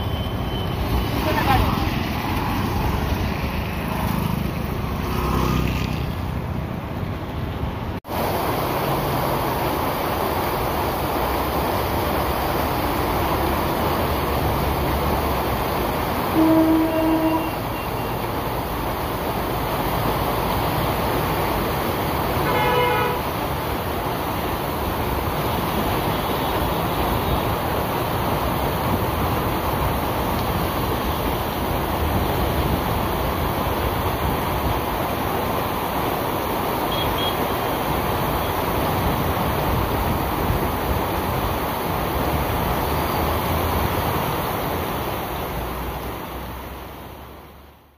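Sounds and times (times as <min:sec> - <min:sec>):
traffic driving through water: 0:00.0 - 0:47.9
heavy rain hissing: 0:08.1 - 0:47.8
higher-pitched horn honking: 0:16.3 - 0:18.2, 0:22.4 - 0:23.3
vehicle horn: 0:16.3 - 0:18.2, 0:22.4 - 0:23.3.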